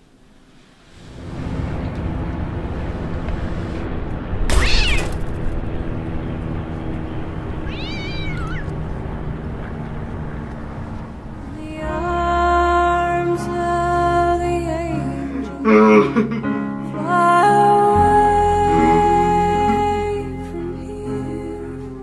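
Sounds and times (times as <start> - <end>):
background rumble: 0.0 - 16.3
cat meowing: 4.5 - 5.2, 7.6 - 8.8.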